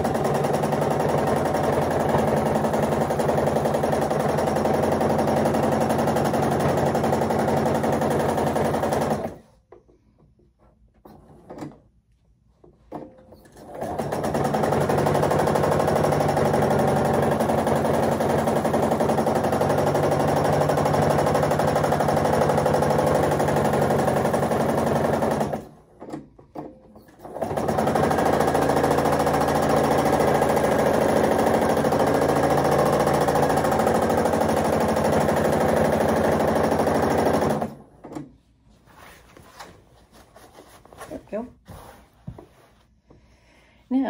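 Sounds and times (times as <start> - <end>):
sewing machine stitching: 0.0 - 9.6, 12.9 - 38.3.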